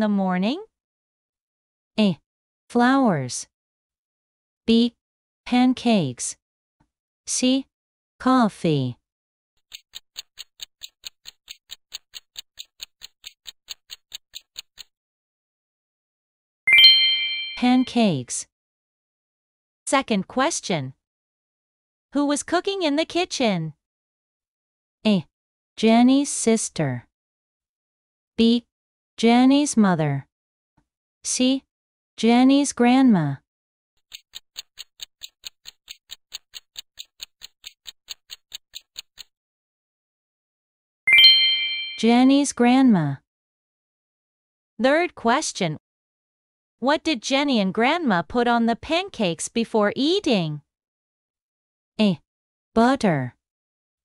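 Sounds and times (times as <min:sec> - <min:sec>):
clock-like ticking: 0:09.6 - 0:14.9, 0:34.0 - 0:39.3.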